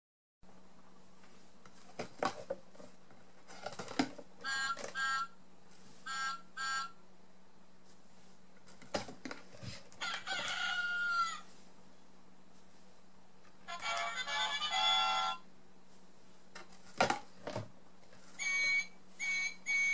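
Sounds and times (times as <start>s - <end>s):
recorded rooster crowing: 10.0s - 11.5s.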